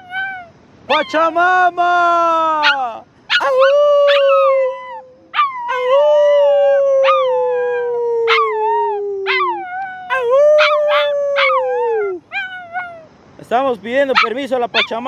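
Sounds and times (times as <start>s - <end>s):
puppy howling: 0.0s - 1.2s, 2.6s - 13.1s, 14.2s - 15.0s
puppy yipping: 0.0s - 1.2s, 2.6s - 5.9s, 7.0s - 7.3s, 8.3s - 13.1s, 14.1s - 15.0s.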